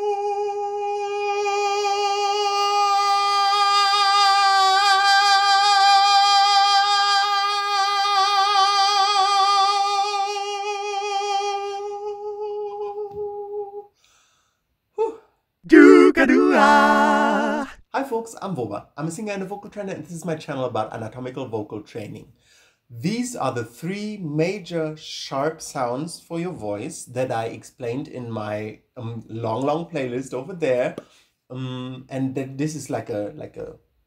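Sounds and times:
man singing a long held note: 0.0 - 13.8, 15.7 - 17.8.

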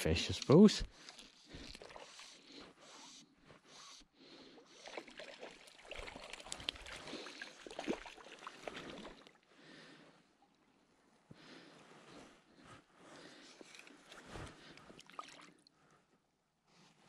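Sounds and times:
fish splashing at water surface: 4.8 - 9.4.

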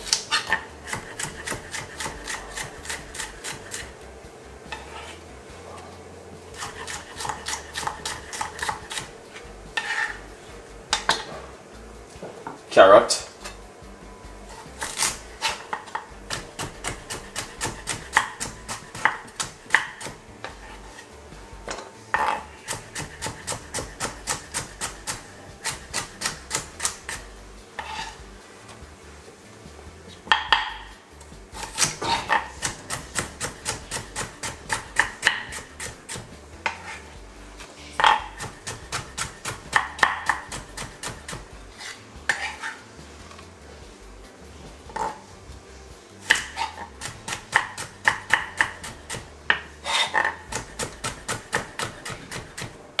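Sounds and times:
knife tapping on wooden board: 30.3 - 30.9, 31.8 - 36.2, 47.3 - 48.9.

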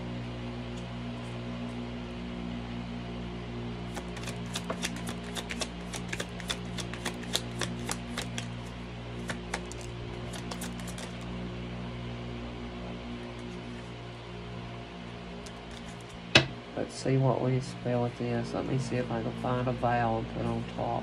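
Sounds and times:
cards shuffled by hand: 3.9 - 11.3, 13.2 - 13.9, 15.4 - 16.3.

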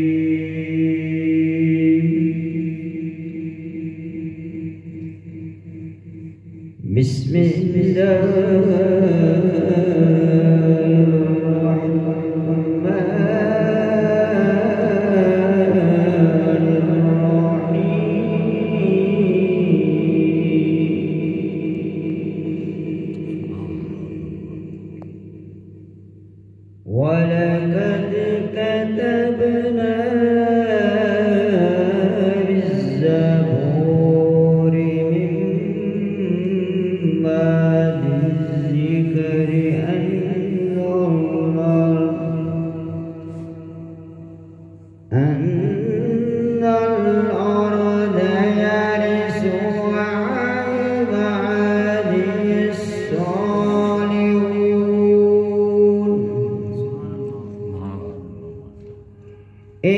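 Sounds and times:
man chanting melodically: 6.7 - 25.3, 26.8 - 59.9.

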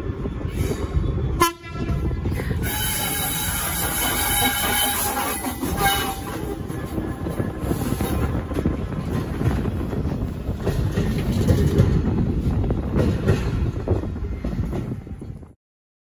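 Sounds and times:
freight train rumbling past: 0.0 - 15.6
train wheel clicks: 7.7 - 15.0.

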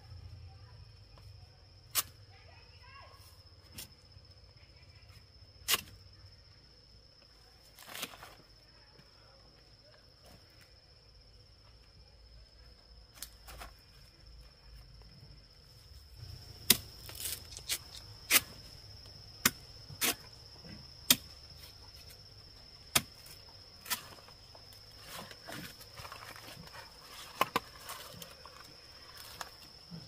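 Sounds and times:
machete chopping banana stalk: 1.9 - 2.2, 5.6 - 6.0, 16.6 - 18.6, 19.4 - 21.4, 22.9 - 24.2
high insect buzz: 10.6 - 30.0.

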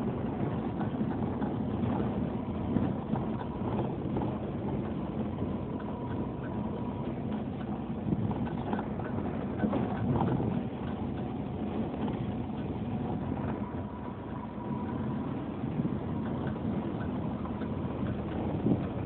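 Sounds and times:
engine and tyre rumble: 0.0 - 19.0
small rattles and knocks: 0.6 - 15.1.

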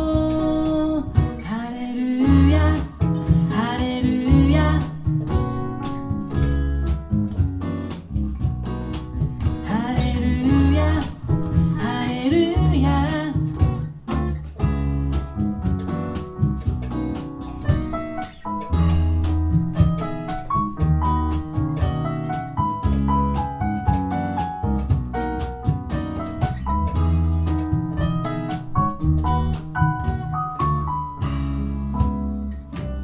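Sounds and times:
person singing: 0.0 - 5.1, 9.6 - 13.6
acoustic band playing: 0.0 - 33.0.

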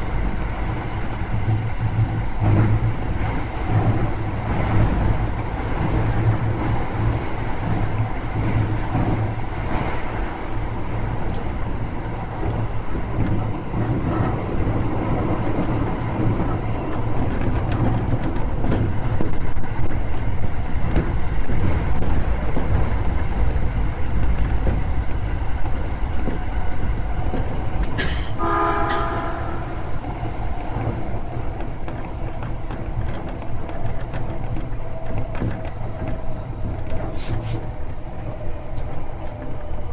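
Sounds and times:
train wheels rumbling on rail: 0.0 - 39.9
click: 11.3 - 11.5.

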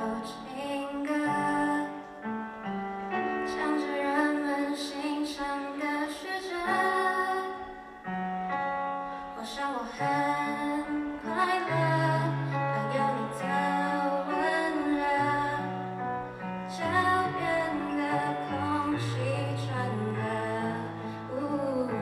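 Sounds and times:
woman singing into a microphone: 0.0 - 8.3, 9.1 - 22.0.

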